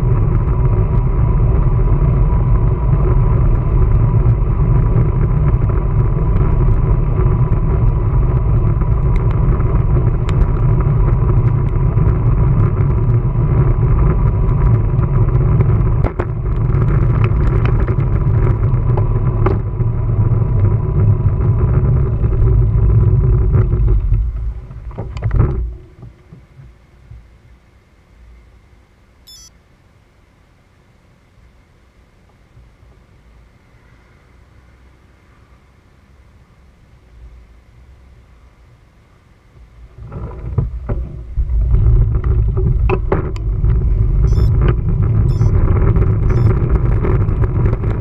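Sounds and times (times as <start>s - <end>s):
bicycle tyre noise: 0.0s - 25.8s, 40.0s - 48.0s
faint steady whine: 0.0s - 48.0s
wind on microphone: 40.0s - 48.0s.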